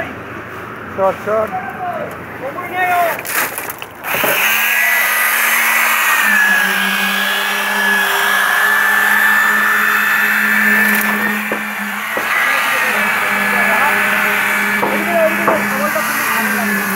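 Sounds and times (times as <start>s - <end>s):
power tool motor whining: 4.0s - 16.9s.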